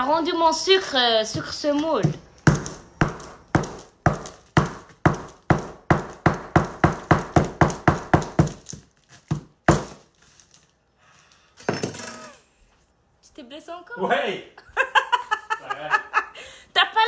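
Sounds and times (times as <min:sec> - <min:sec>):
knife chopping sugar loaf: 0:01.3 - 0:10.1.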